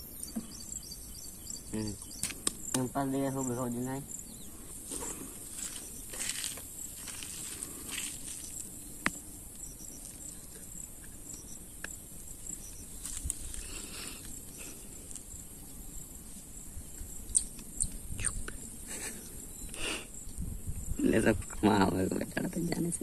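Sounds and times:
insects chirring: 0.0s - 23.0s
sharp click: 2.2s - 2.9s
hands rustling with bait: 4.8s - 8.7s, 12.9s - 15.2s.

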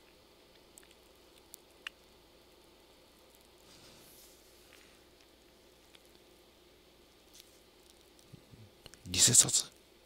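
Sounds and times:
faint steady hiss: 0.0s - 10.0s
faint soft rustle: 3.0s - 6.4s, 7.2s - 8.5s.

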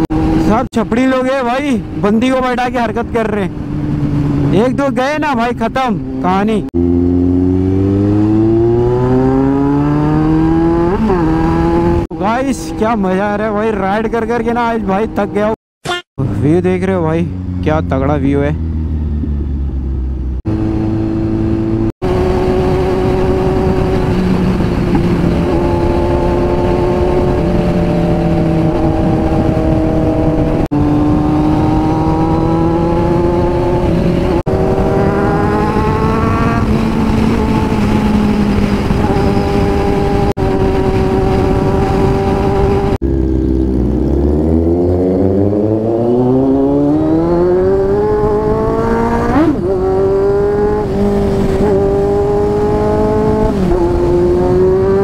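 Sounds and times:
motorcycle engine accelerating: 0.0s - 15.6s, 16.2s - 55.0s
wind rush: 18.5s - 55.0s.

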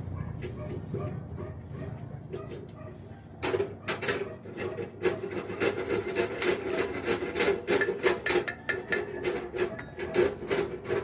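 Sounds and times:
hand tool scraping steel hub: 3.4s - 11.0s.

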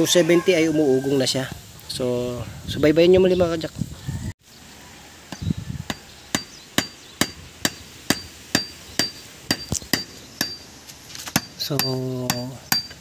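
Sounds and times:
hammer striking metal with ring: 6.4s - 10.6s, 11.4s - 13.0s.

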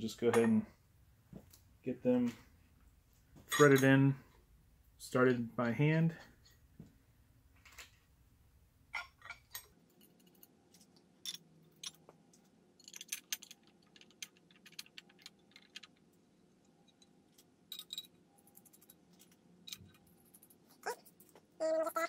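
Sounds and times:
small screws clicking and clinking: 8.9s - 21.4s.

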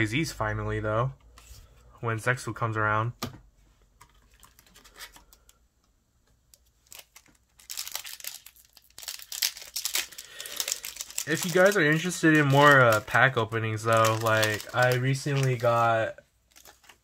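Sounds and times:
foil wrapper crinkling and tearing: 6.6s - 17.0s.

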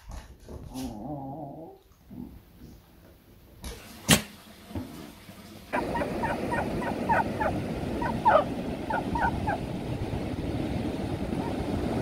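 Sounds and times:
surf rushing: 5.7s - 12.0s
dog yelping: 5.8s - 9.6s.

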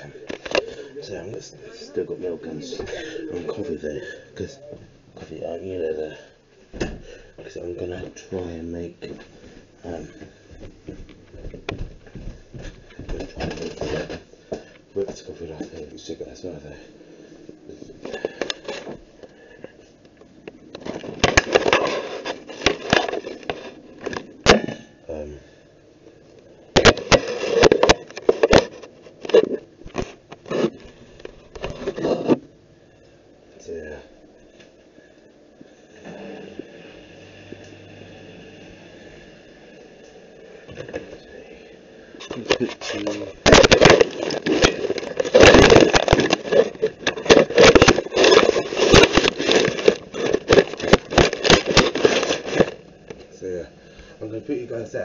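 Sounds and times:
camera handling knocks and rubbing: 43.5s - 52.8s.

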